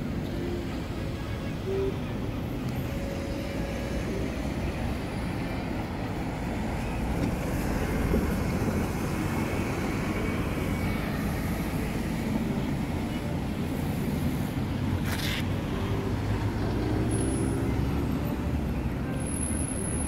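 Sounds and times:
bus driving past: 0.0s - 20.0s
road traffic: 0.0s - 20.0s.

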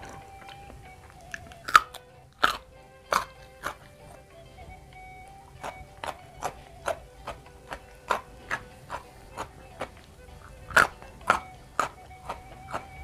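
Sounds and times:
person chewing crunchy vegetables: 1.2s - 3.9s, 5.6s - 13.0s.

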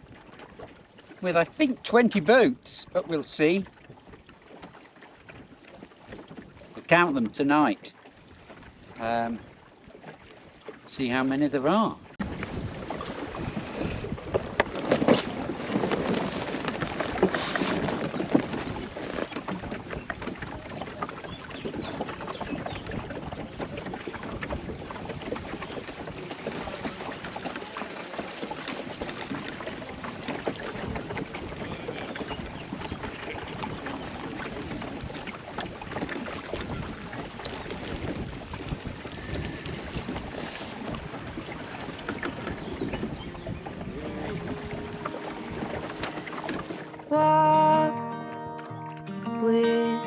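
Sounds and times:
water lapping on boat hull: 0.0s - 50.0s
wind buffeting microphone: 12.1s - 47.0s.

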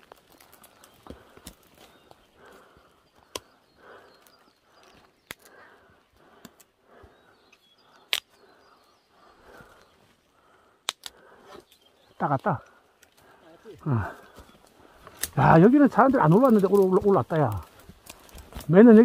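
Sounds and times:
twigs cracking: 0.0s - 19.0s
faint bird chirps: 0.5s - 5.9s, 6.8s - 16.0s.

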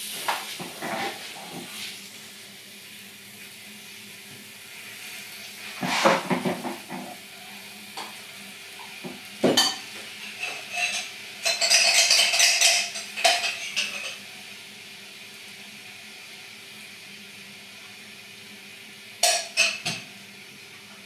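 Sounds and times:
dishes and cutlery clinking: 9.4s - 14.2s, 19.2s - 20.0s.

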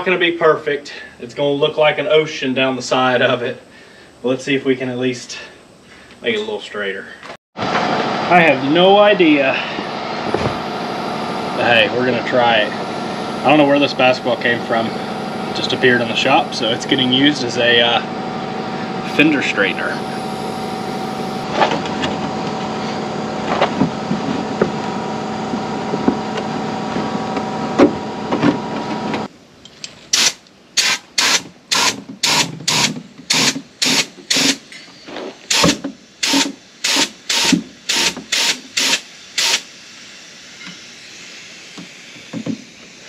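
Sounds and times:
steady mechanical hum: 0.0s - 43.0s
hand pump air strokes: 30.1s - 34.7s, 35.5s - 39.7s.

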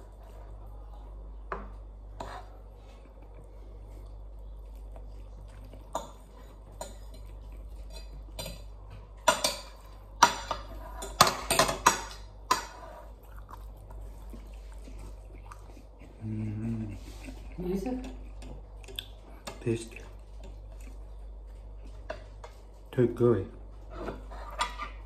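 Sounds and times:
low steady hum: 0.0s - 25.0s
cutlery scraping a plate: 2.2s - 2.6s, 5.9s - 13.1s, 23.9s - 25.0s.

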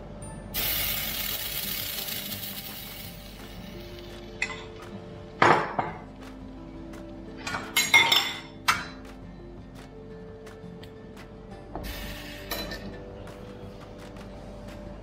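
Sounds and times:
soft background music: 0.0s - 15.0s
metal utensils clinking on griddle: 0.6s - 4.8s, 7.4s - 9.0s, 12.4s - 13.0s.

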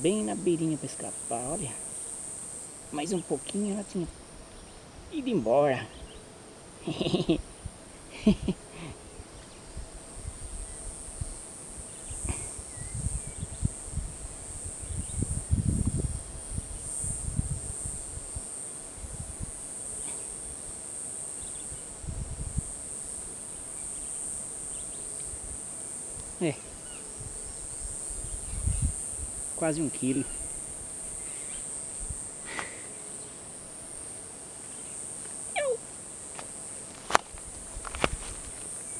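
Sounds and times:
insects droning: 0.0s - 38.9s
fish thumping and rustling in grass: 36.3s - 38.6s.

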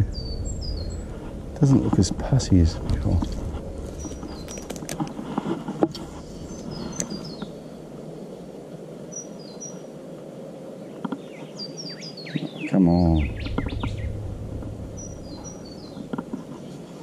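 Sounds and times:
small birds chirping: 0.0s - 10.0s, 10.6s - 17.0s
steady outdoor hiss: 0.0s - 17.0s.

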